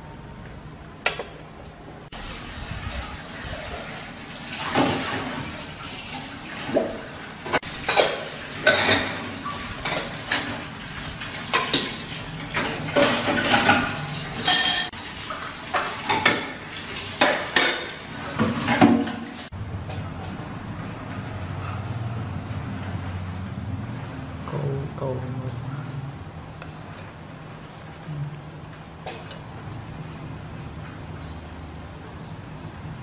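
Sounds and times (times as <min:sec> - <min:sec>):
dishes and cutlery clinking: 0:07.6 - 0:10.6, 0:11.4 - 0:15.0.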